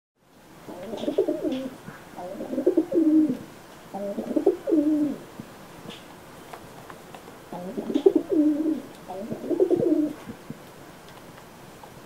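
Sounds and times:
pigeon cooing: 0:00.7 - 0:05.2, 0:07.5 - 0:10.4.

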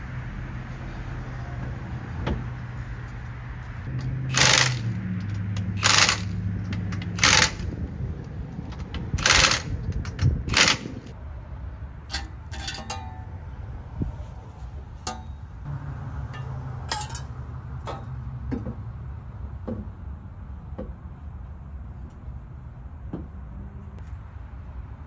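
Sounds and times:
cordless power tool bursts: 0:04.3 - 0:04.9, 0:05.8 - 0:06.4, 0:07.2 - 0:07.6
small metal clinks: 0:16.4 - 0:17.4.

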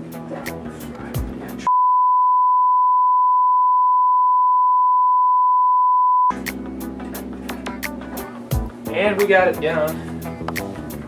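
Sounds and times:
background music with a beat: 0:00.0 - 0:01.7, 0:06.3 - 0:09.0, 0:10.1 - 0:11.0
steady test-tone beep: 0:01.7 - 0:06.3.

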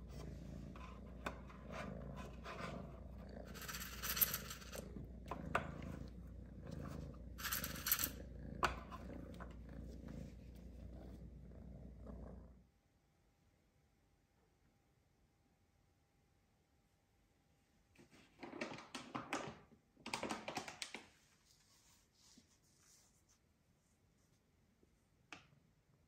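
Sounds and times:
kitten purring: 0:00.0 - 0:12.6.

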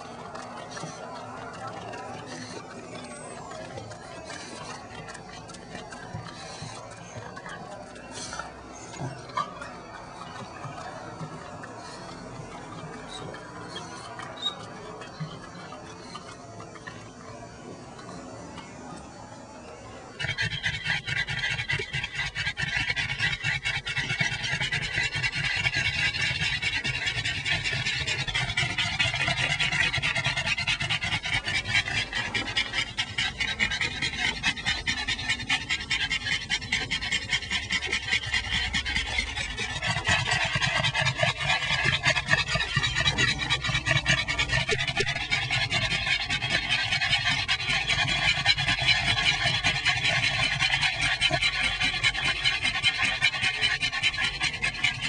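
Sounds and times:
dog panting fast: 0:00.0 - 0:17.2, 0:20.2 - 0:55.0.

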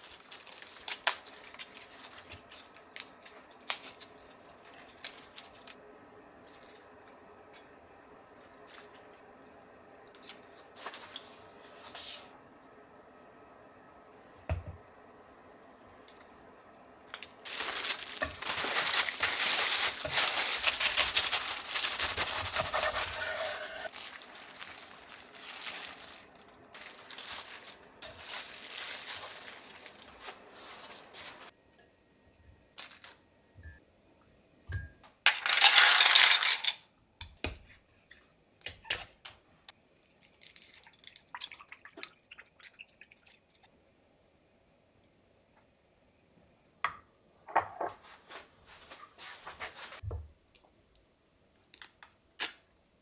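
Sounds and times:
plastic wrap crinkling: 0:00.0 - 0:05.8, 0:17.1 - 0:31.5, 0:32.8 - 0:33.2.

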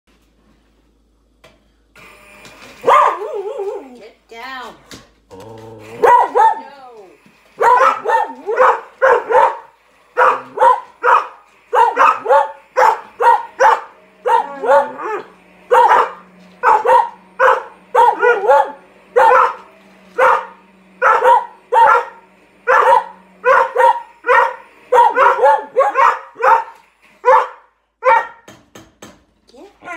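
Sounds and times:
dogs barking: 0:02.8 - 0:03.8, 0:05.9 - 0:06.8, 0:07.6 - 0:28.5.

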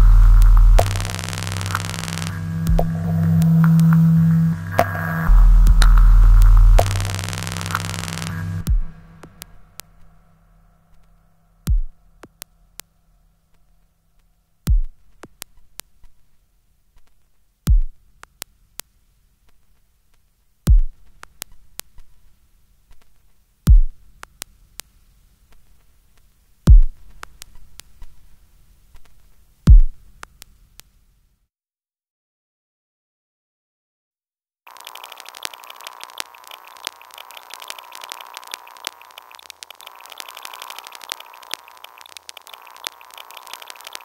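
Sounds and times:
sharp digital clicks: 0:00.0 - 0:10.2, 0:34.7 - 0:44.0
deep bass pulse: 0:00.0 - 0:10.4
faint low hum: 0:00.0 - 0:14.2.

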